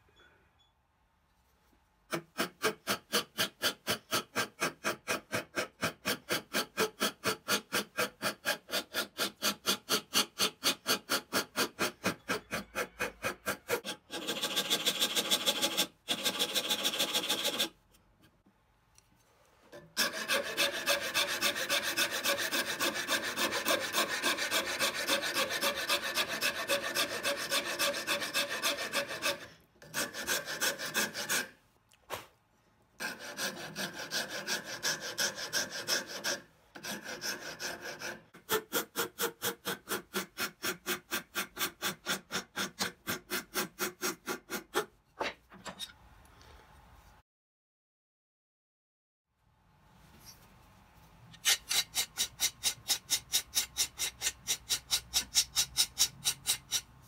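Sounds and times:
wood rasp scraping: 2.1 - 17.8, 19.8 - 31.6, 33.0 - 45.4, 51.4 - 57.0.

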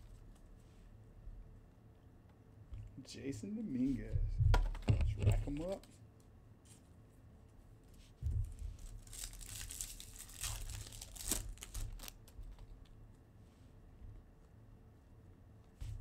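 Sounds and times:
foil wrapper tearing and crinkling: 8.8 - 12.4.

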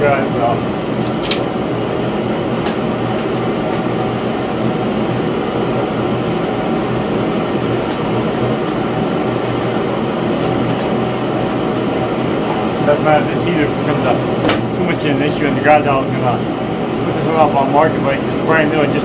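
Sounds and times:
gas heater rushing: 0.0 - 19.0.

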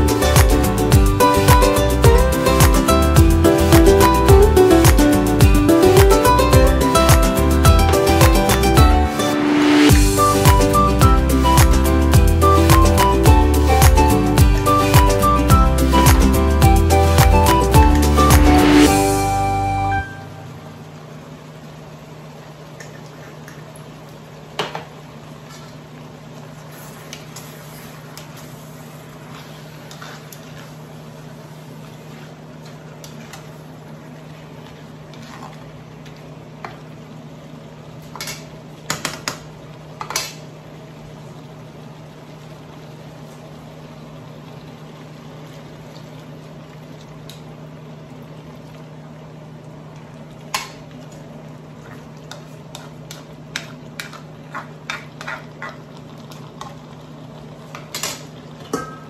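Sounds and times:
sauce bubbling in a wok: 20.8 - 59.0.

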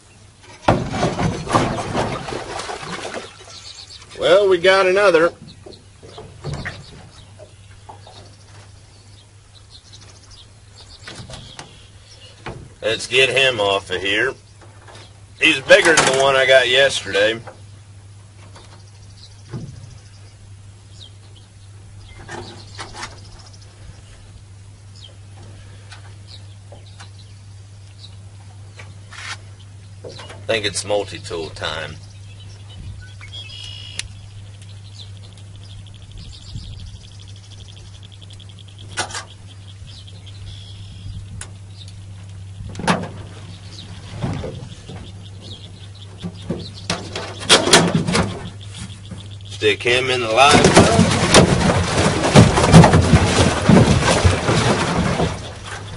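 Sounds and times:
steady low hum: 0.0 - 55.9
knocks and rustles: 0.4 - 4.2, 5.3 - 8.8, 10.8 - 12.9, 14.6 - 16.6, 18.3 - 20.1, 28.4 - 30.6, 41.3 - 49.4, 50.1 - 55.9
bird chirps: 3.3 - 4.3, 26.2 - 42.7, 43.4 - 50.8.

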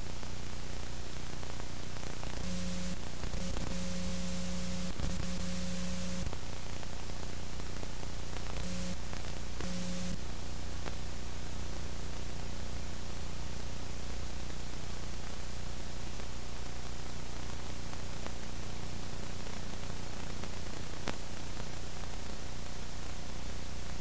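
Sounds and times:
low electrical hum: 0.0 - 24.0
static hiss: 0.0 - 24.0
buzzing tone: 2.4 - 6.3, 8.6 - 9.0, 9.6 - 10.2.

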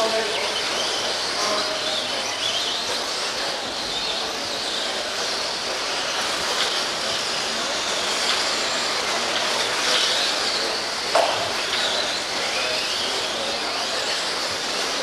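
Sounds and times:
electric motors whining: 0.0 - 15.0
sharp knock: 11.1 - 11.5.

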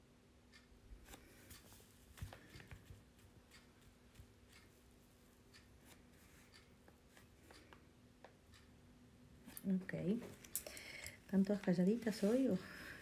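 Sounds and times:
faint steady hum: 0.0 - 13.0
small clicks and taps: 0.5 - 8.7.

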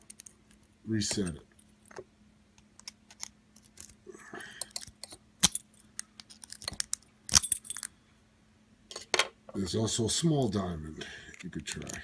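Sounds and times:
lock picks clicking in a padlock: 4.6 - 7.9.

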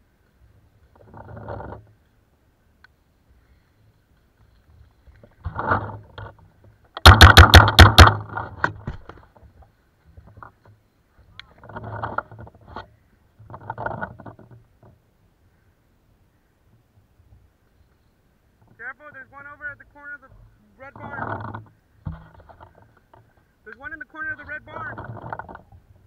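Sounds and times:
paintball marker firing rapidly: 7.0 - 8.2.

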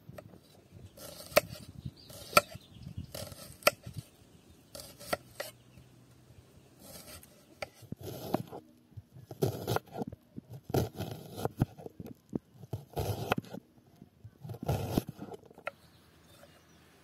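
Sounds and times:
knife slicing onion on wooden board: 1.0 - 4.0, 4.7 - 5.6, 6.8 - 8.6, 9.3 - 11.8, 12.6 - 13.6.

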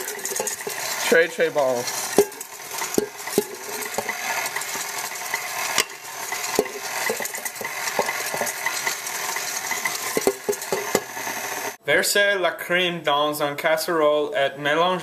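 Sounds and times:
whisk scraping a metal bowl: 0.0 - 11.8.

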